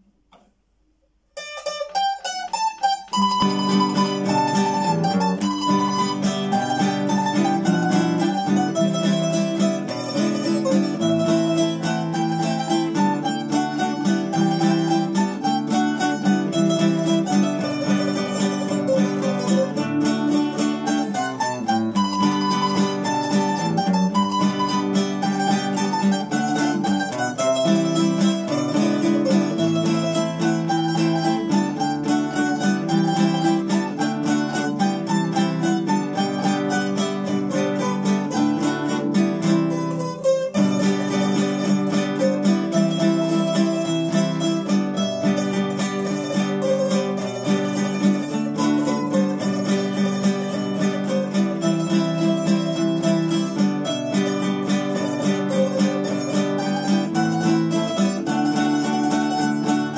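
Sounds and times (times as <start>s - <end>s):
acoustic guitar: 0.0s - 59.9s
small string instrument: 0.0s - 59.9s.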